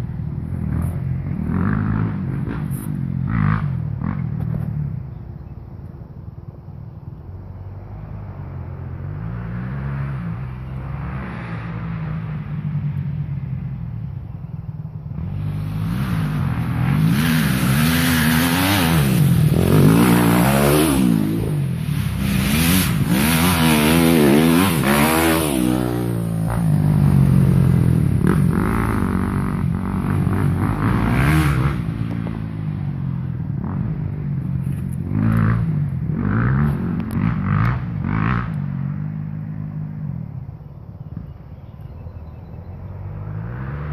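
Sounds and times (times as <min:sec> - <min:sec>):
dirt bike engine revving: 0:00.6 - 0:04.6, 0:15.1 - 0:32.9, 0:35.0 - 0:40.0.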